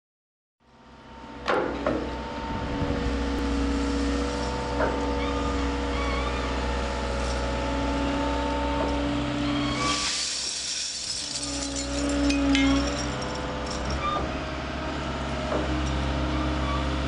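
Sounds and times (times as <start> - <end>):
material handler engine humming: 1.3 - 17.0
steel turnings rattling down: 10.0 - 14.0.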